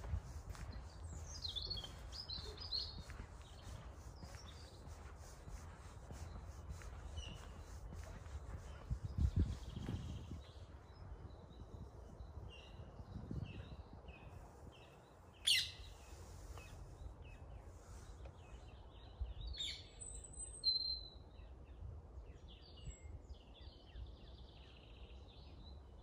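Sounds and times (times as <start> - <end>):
steady low rumble: 0.0 - 12.4
songbirds chirping and singing: 0.0 - 21.7
sharp loud bird calls: 15.4 - 16.0.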